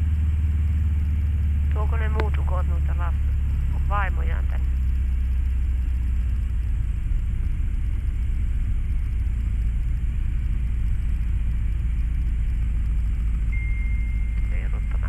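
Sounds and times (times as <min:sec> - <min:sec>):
motorglider engine droning: 0:00.0 - 0:15.0.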